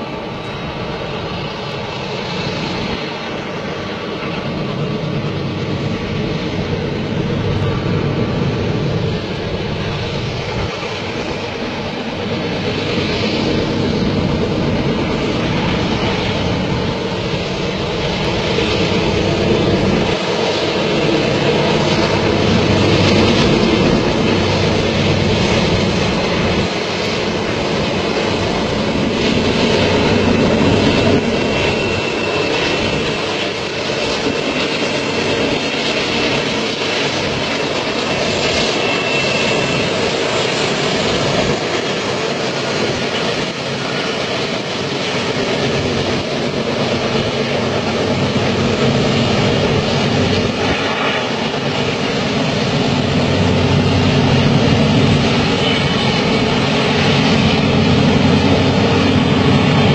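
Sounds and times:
diesel locomotives droning: 0.0 - 59.9.

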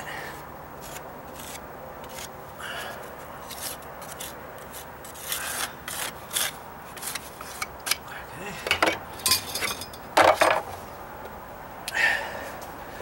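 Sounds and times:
putty knife scraping: 0.8 - 8.0.

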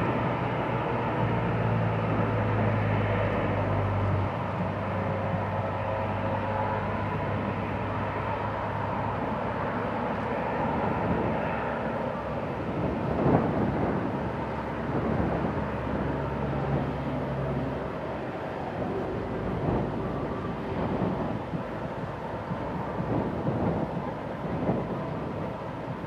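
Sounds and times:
jet engines humming and whining: 0.0 - 26.0.

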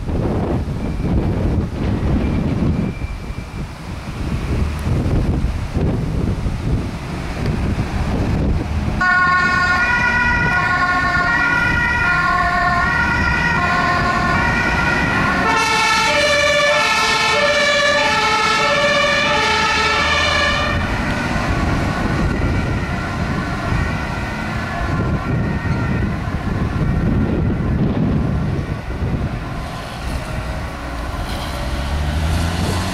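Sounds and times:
engines rumbling: 0.0 - 32.9
wind: 0.0 - 32.9
two-tone fire engine sirens: 7.4 - 32.9.

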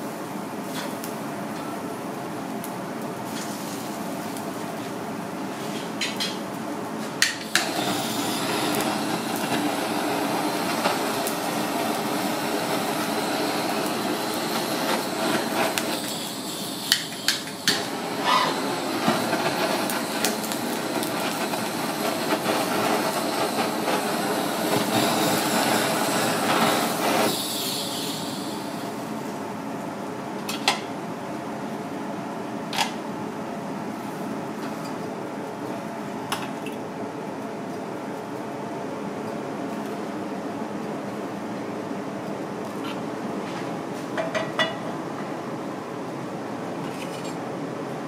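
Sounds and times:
fish sizzling on a grill: 3.0 - 29.6.

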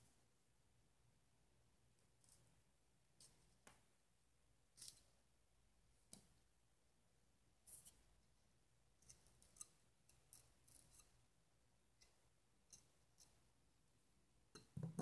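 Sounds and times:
small knife clicks and scratches: 9.0 - 11.1.

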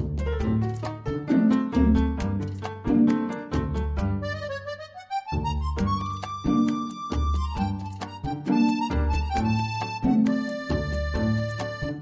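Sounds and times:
repeating bass line: 0.0 - 4.7
light beat: 0.0 - 12.0
sliding lead melody: 0.0 - 12.0.

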